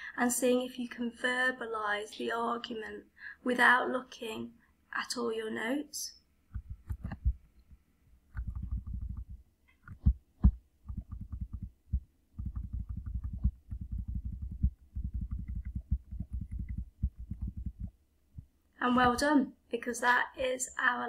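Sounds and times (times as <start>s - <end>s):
rapid dull laptop clicking: 8.3s - 11.8s, 12.4s - 17.9s.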